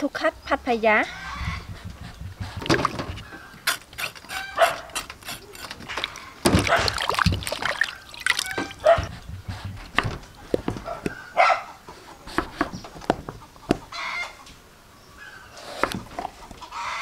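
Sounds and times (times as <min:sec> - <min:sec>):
water sloshing and splashing: 0:01.8 - 0:04.2, 0:05.2 - 0:10.7
knife cutting on wooden board: 0:01.8 - 0:06.8, 0:12.2 - 0:13.9, 0:15.6 - 0:16.2.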